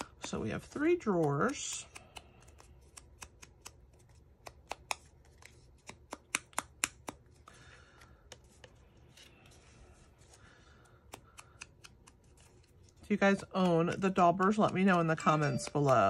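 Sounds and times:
soft rubbing and paper rustling: 4.9s - 6.1s, 8.2s - 16.0s.

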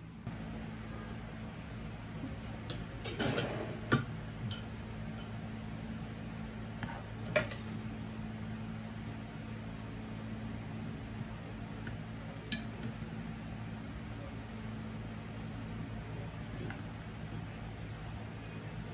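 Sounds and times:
steady low hum: 0.0s - 18.9s.

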